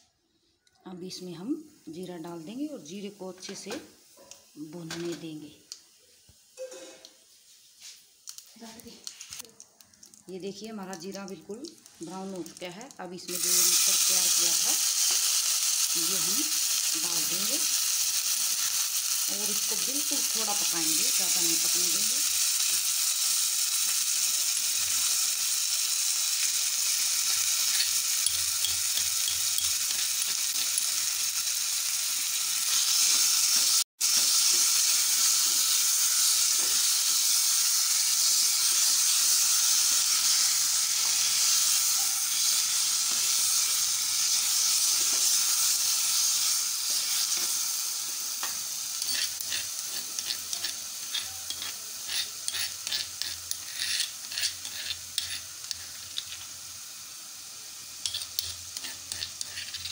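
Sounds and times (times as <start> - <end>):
food sizzling in a pan: 1.1 - 59.9
spoon scraping a pan: 27.2 - 31.2, 48.4 - 56.6, 58.0 - 59.9.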